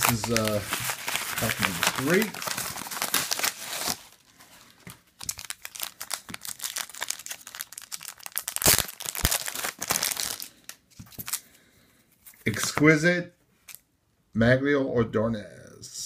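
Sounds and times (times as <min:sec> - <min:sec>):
plastic bag crinkling: 0:00.0 - 0:11.4.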